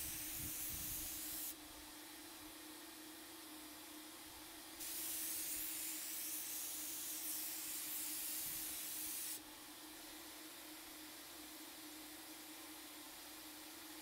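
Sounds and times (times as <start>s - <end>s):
paint sprayer hissing: 0.0s - 1.6s, 4.8s - 9.4s.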